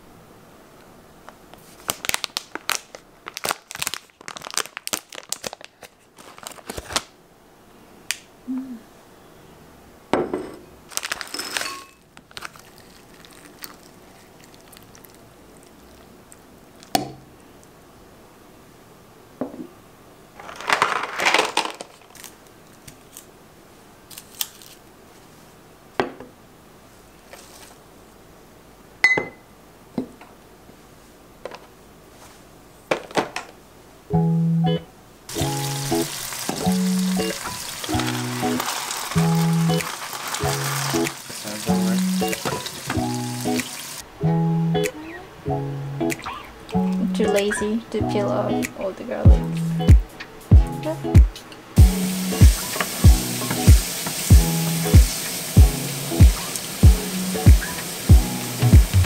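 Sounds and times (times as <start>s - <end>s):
plastic packaging crinkling: 1.6s - 7.2s, 10.9s - 16.0s, 20.4s - 23.3s, 24.1s - 24.9s, 35.3s - 44.0s.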